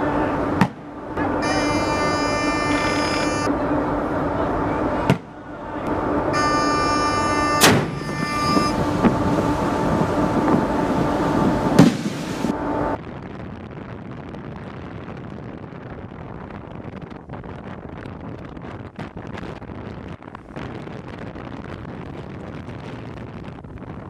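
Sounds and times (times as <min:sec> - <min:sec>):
steady hum with held tones: 0:00.0 - 0:14.4
wind noise on microphone: 0:00.0 - 0:24.0
decoy launcher booms: 0:07.6 - 0:08.2, 0:11.7 - 0:12.2.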